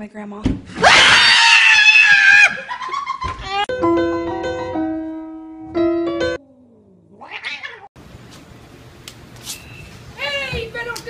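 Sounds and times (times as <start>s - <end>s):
keyboard notes ringing: 3.7s - 6.4s
cat-like yowl: 6.4s - 7.9s.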